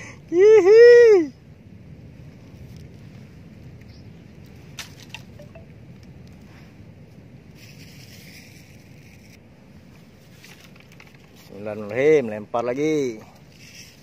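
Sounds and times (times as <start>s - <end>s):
wind rumble on microphone: 0.0s - 14.0s
brief rustle: 10.2s - 12.0s.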